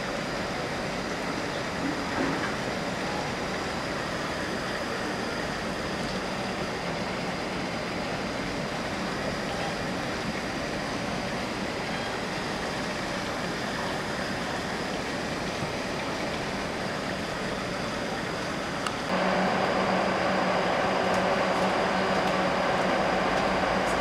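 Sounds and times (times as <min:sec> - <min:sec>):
faint high whine: 0:16.9 - 0:24.0
steady rushing noise: 0:18.8 - 0:24.0.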